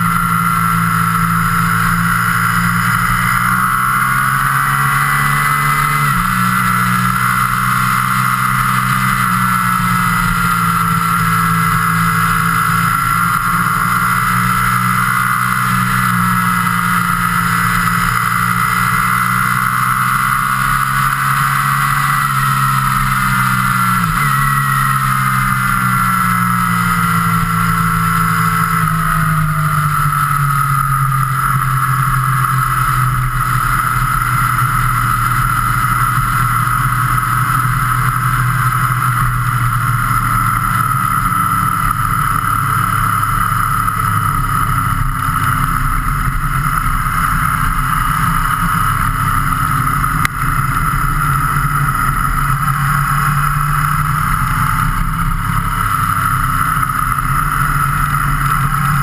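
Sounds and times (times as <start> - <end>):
vehicle engine running: 0.0 - 59.0.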